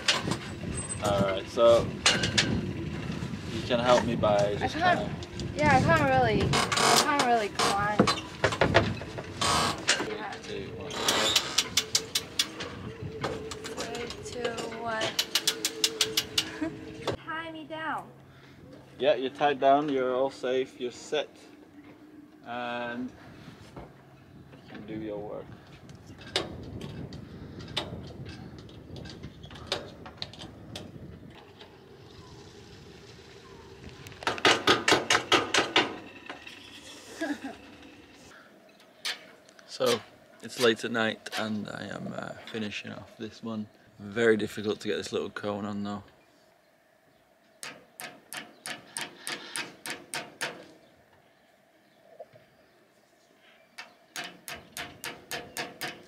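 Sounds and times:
low rumble: 0:07.5 - 0:17.3.

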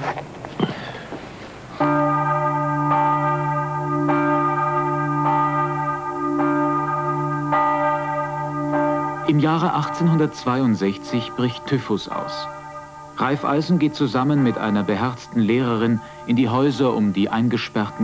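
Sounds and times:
church bell tolling: 0:01.7 - 0:18.0.

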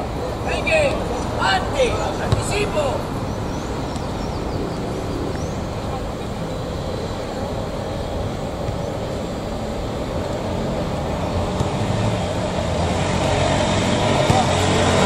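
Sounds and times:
outdoor background rumble: 0:00.0 - 0:15.0.

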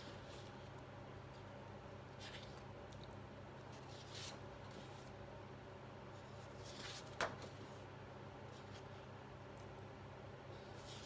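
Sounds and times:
faint room hum: 0:00.0 - 0:11.0
paper sliding and rustling: 0:10.7 - 0:11.0.

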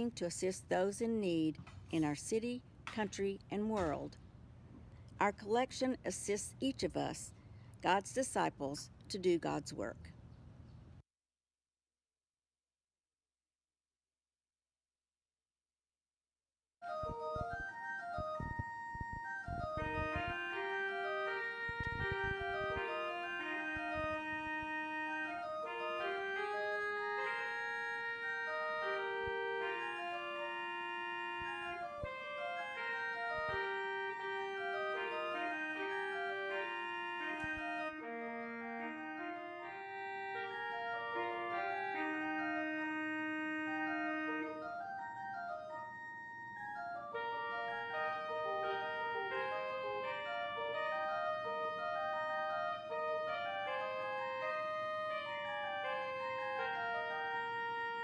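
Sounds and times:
church organ sustained chords: 0:16.9 - 0:58.0.

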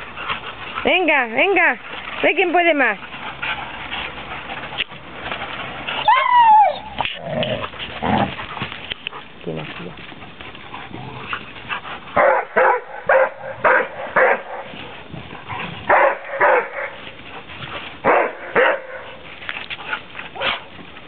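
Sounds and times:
dog barking: 0:12.2 - 0:14.6, 0:15.9 - 0:16.9, 0:18.1 - 0:19.1.

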